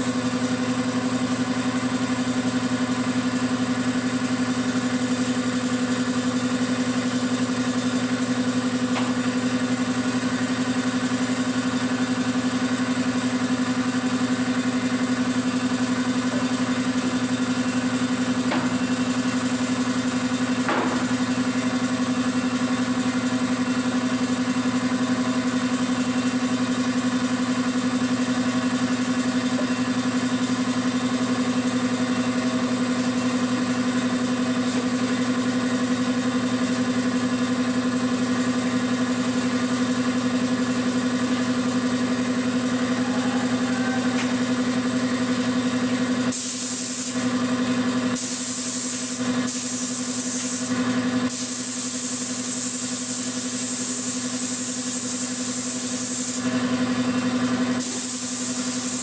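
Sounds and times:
air compressor humming: 0:00.0 - 0:59.0
spray gun hissing: 0:46.3 - 0:47.2, 0:48.1 - 0:56.5, 0:57.8 - 0:59.0.

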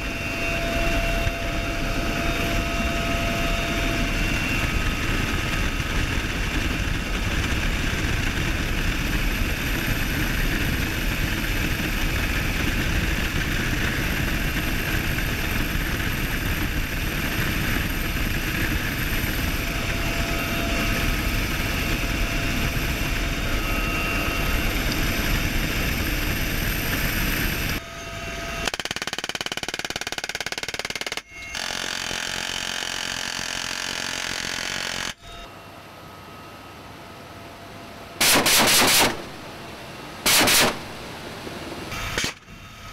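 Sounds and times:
wind rush: 0:00.0 - 0:28.6
helicopter rotor and turbine: 0:00.0 - 0:42.9.

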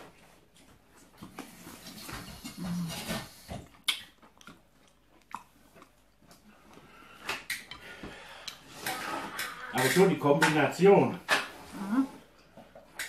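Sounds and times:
person chewing food: 0:03.6 - 0:09.7.

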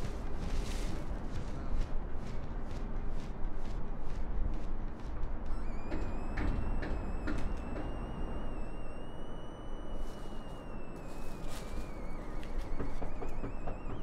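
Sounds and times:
distant traffic rumble: 0:00.0 - 0:14.0
thin high wavering tone: 0:05.5 - 0:14.0.

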